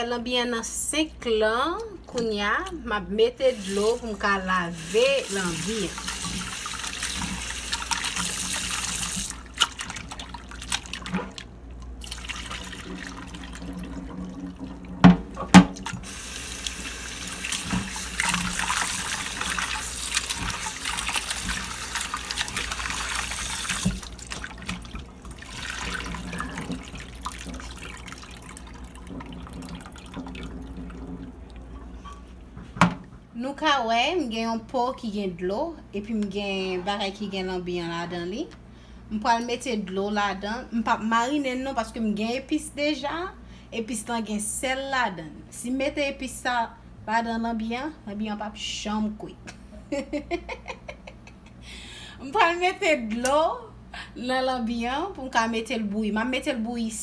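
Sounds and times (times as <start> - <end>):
tap water running into sink: 4.8 - 32.2.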